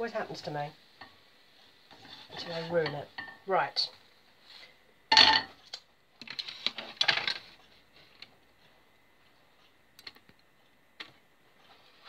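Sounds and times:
frying pan and spatula clattering: 5.1s - 5.6s.

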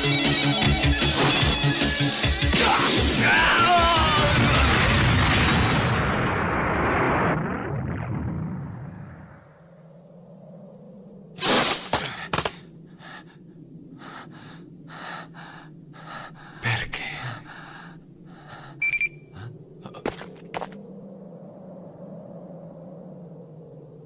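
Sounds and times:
man panting hard: 12.0s - 20.2s
high-pitched beep: 18.8s - 19.3s.

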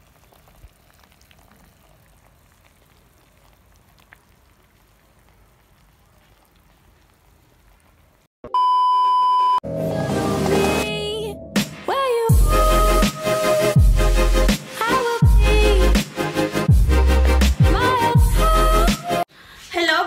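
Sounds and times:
pot simmering with bubbling: 0.0s - 8.3s
test-tone beep: 8.5s - 9.6s.

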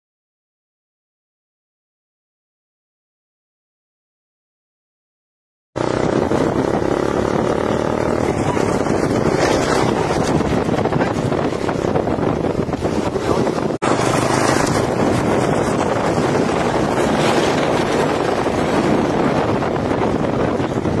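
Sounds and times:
vehicle running: 5.8s - 21.0s
wind buffeting microphone: 5.8s - 21.0s.

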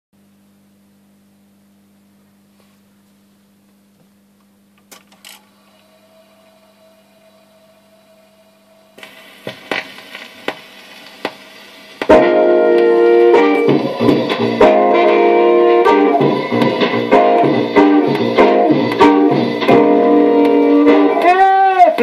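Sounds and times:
record surface hiss and crackle: 0.2s - 22.0s
record ticking: 9.0s - 22.0s.

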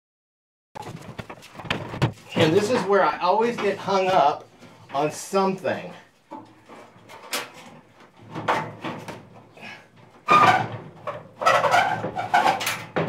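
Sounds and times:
sheet metal scraping and clattering: 6.3s - 9.4s, 10.0s - 13.0s.

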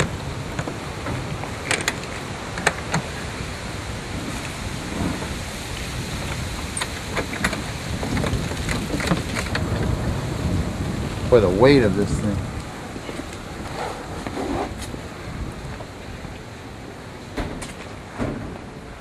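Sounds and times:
latch clicks and knocks: 0.0s - 3.1s.

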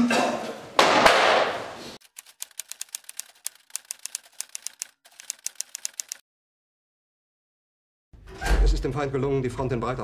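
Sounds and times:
typewriter key clicks: 2.0s - 6.2s.

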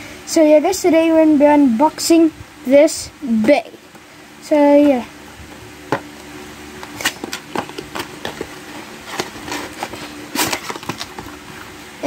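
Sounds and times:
faint steady hum: 0.0s - 12.0s
cardboard packaging crinkling: 6.9s - 11.7s.

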